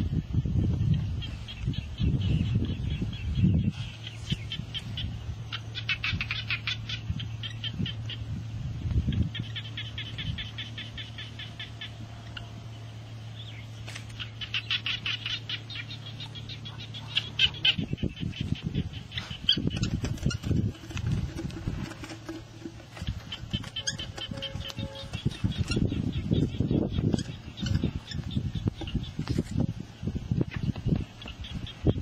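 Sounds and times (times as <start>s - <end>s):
low hum: 0.0s - 32.0s
rapid high chirping clicks: 19.2s - 29.2s.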